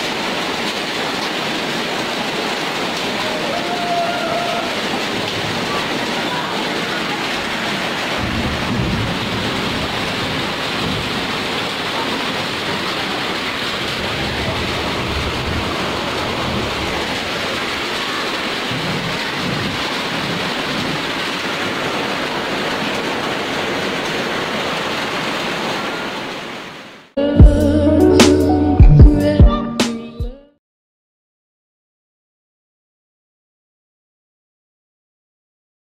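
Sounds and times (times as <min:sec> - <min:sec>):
heavy rain and hail: 0:00.0 - 0:27.2.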